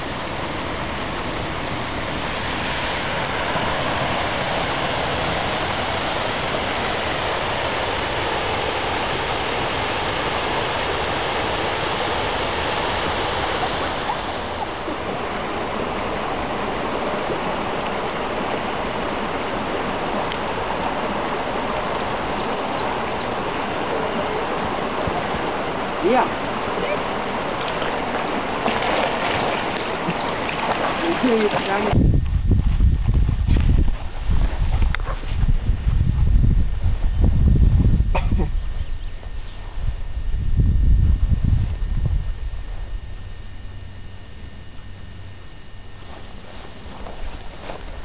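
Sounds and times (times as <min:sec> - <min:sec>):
stream water rushing: 0:00.0 - 0:32.0
faint high chirps: 0:22.0 - 0:23.6.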